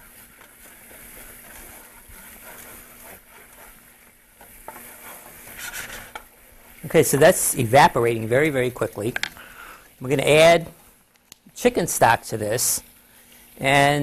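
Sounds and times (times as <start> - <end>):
wooden spoon scraping pan: 0.0 - 10.9
faint sizzle: 0.0 - 14.0.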